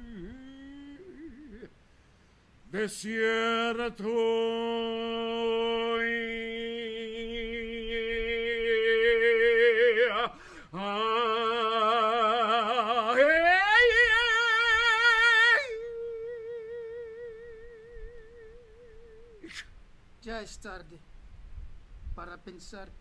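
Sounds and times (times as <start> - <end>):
man singing long held notes: 0.0 - 1.8, 2.6 - 19.6
singer breathing: 1.7 - 2.6, 10.3 - 10.8.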